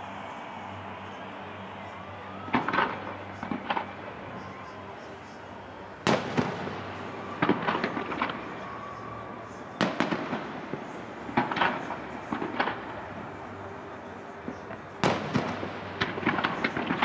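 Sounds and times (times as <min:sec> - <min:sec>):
firework crackles: 0:00.0 - 0:17.0
firework shells booming: 0:06.0 - 0:08.6, 0:14.5 - 0:17.0.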